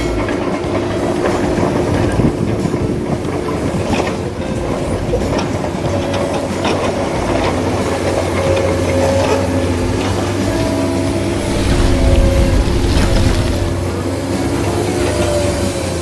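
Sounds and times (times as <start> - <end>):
steady hum: 11.2 - 13.8.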